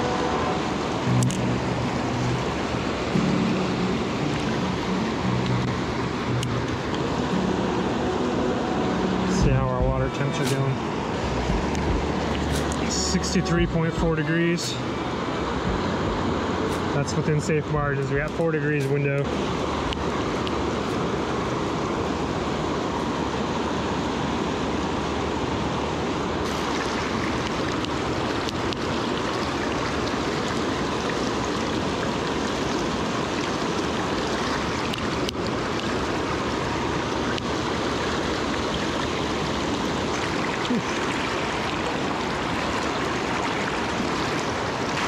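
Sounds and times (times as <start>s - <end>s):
river water rushing over rocks: 0.0s - 45.0s.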